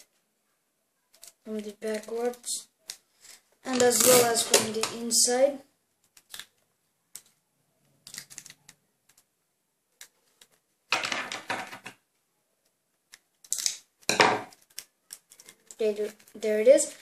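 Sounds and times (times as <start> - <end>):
paper crinkling: 14.5 - 17.0.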